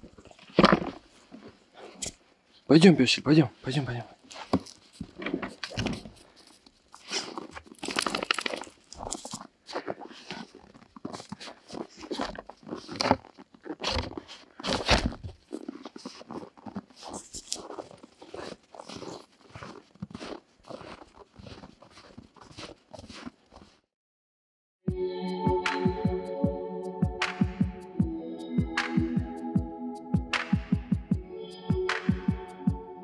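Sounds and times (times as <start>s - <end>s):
footsteps crunching in snow: 3.7s - 23.8s.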